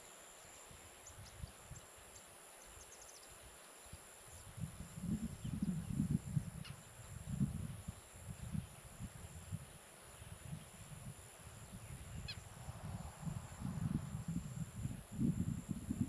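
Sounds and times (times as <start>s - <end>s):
high-pitched insect chorus: 0.0s - 16.0s
wind gusting on microphone: 4.3s - 16.0s.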